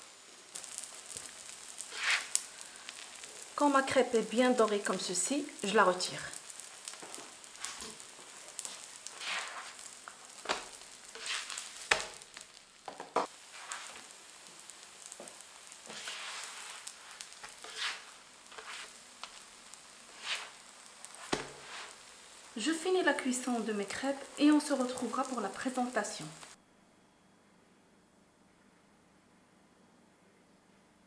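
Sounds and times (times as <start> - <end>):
food sizzling on a griddle: 0.0 - 26.6
spatula knocking and scraping: 9.1 - 12.2, 15.3 - 19.4, 20.1 - 22.0.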